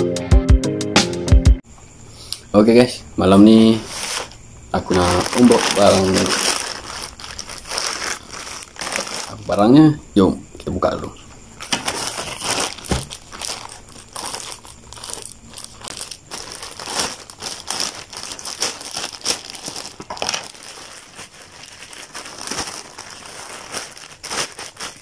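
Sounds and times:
plastic mailer bag crinkling: 3.5 - 10.0, 11.6 - 25.0.

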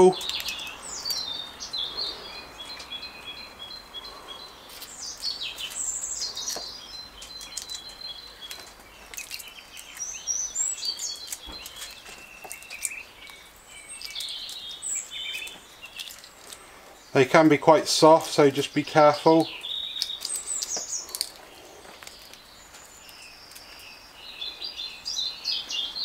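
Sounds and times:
songbirds singing: 0.0 - 26.0
egg shell being peeled: 0.2 - 1.2, 4.7 - 16.7, 19.7 - 23.9.

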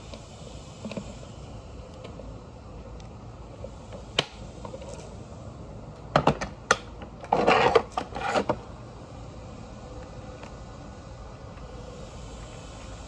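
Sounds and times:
vacuum scraping on concrete floor: 7.2 - 8.7.

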